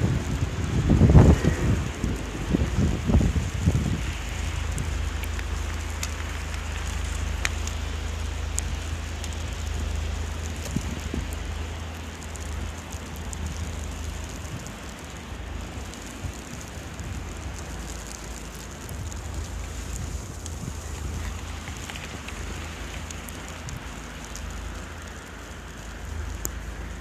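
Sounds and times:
crackling hiss: 0.0 - 27.0
wind rumbling on microphone: 0.0 - 27.0.

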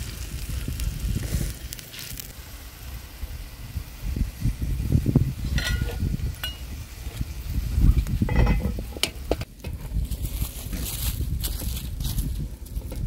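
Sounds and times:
steady low rumble: 0.0 - 13.0
metal lid and ladle clinking: 5.5 - 6.6, 8.3 - 9.2.

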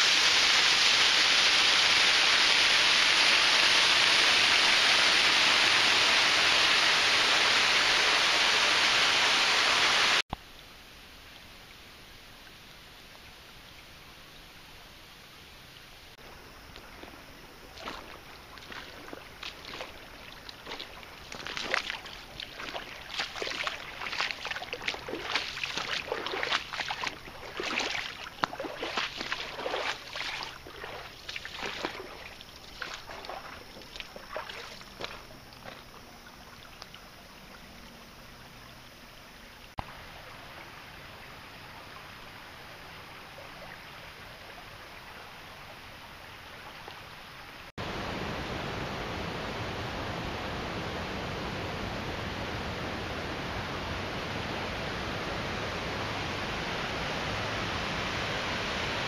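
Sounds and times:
creek water rushing: 0.0 - 10.2, 16.1 - 59.0
creek water splashing over rock: 0.0 - 10.2, 16.2 - 39.0.

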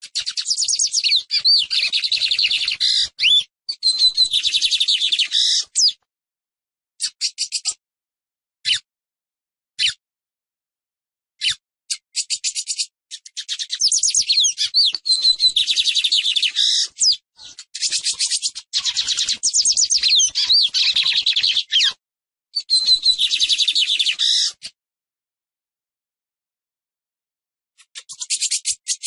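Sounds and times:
bird singing trills and whistles: 0.0 - 6.0, 7.0 - 7.8, 9.8 - 10.0, 11.4 - 22.0, 22.6 - 24.7, 27.8 - 29.0.

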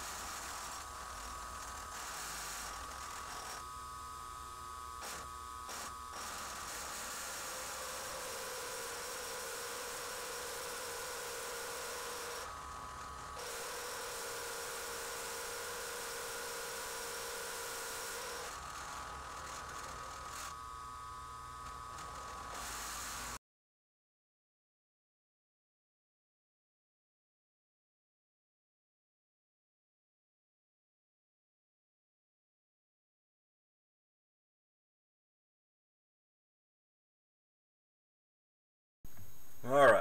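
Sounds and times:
milling machine motor whine: 0.0 - 23.4, 39.1 - 40.0.

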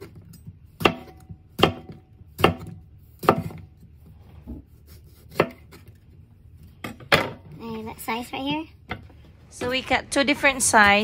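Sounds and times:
knife chopping on cutting board: 0.0 - 6.0.

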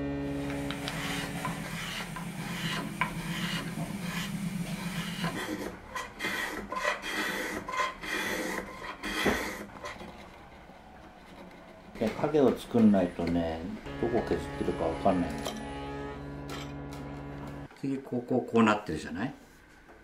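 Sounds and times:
hand plane shaving wood: 0.4 - 13.0.

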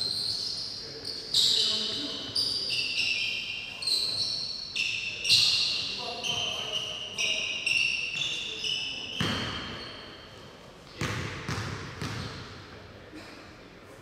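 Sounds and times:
shoes squeaking on hardwood floor: 0.0 - 10.3
basketball bouncing in gym: 5.2 - 10.0, 10.9 - 12.7.

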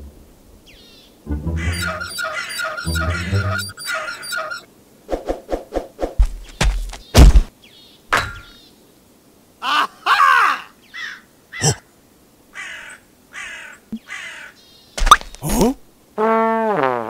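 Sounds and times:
harsh squawking calls: 1.4 - 4.7
cartoon knocks and thuds: 6.2 - 7.5.

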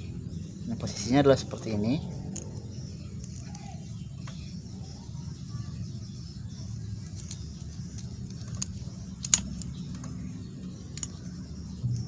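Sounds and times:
steady low rumble: 0.0 - 12.0
small sharp plastic clicks: 7.0 - 10.2.

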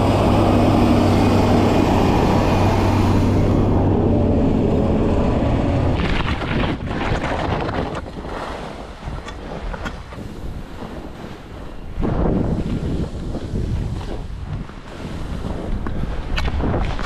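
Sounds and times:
snowcat engine running: 0.0 - 6.5
wind buffeting microphone: 0.0 - 17.0
skis scraping over snow: 5.6 - 17.0.

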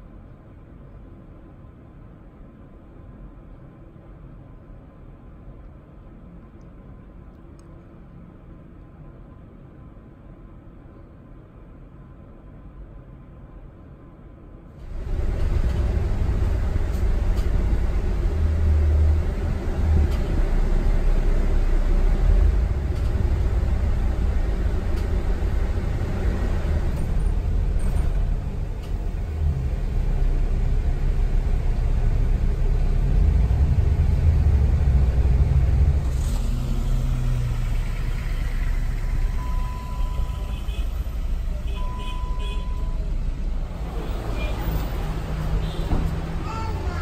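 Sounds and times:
car engine and tyre rumble: 0.0 - 47.0
electronic beep: 41.7 - 43.0.

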